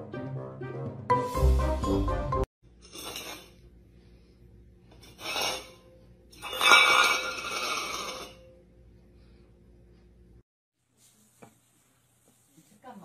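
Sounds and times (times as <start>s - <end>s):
steel bowl scraping on tile floor: 2.8s - 3.6s, 4.9s - 8.5s.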